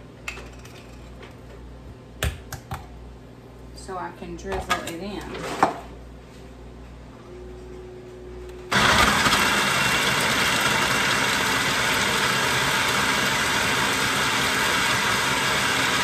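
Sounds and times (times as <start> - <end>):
food processor motor running: 8.7 - 16.0.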